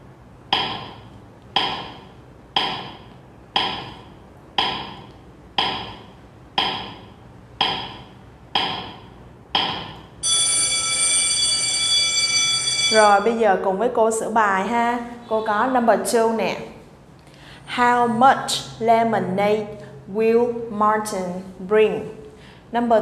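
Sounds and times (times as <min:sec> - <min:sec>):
woody clock ticks: 0:00.5 - 0:00.9, 0:01.6 - 0:02.0, 0:02.6 - 0:03.0, 0:03.6 - 0:04.0, 0:04.6 - 0:05.0, 0:05.6 - 0:06.0
alarm clock bell ringing: 0:10.2 - 0:13.4.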